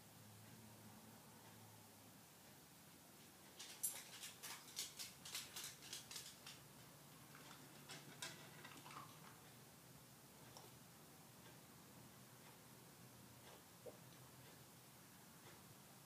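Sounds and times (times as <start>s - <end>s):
dog's claws ticking on wooden floor: 3.6s - 6.7s.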